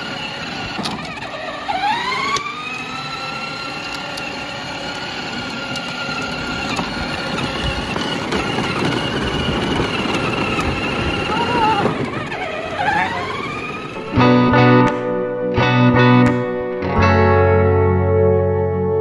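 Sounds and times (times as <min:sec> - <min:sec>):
electric motor whine: 0:00.0 - 0:14.2.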